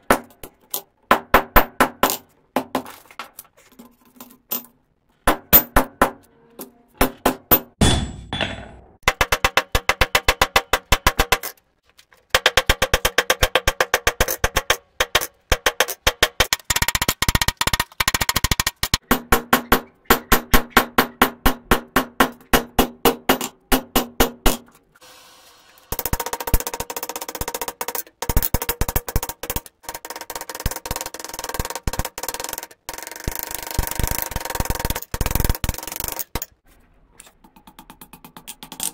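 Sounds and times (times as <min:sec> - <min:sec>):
anvil ringing: 0:07.8 - 0:08.9.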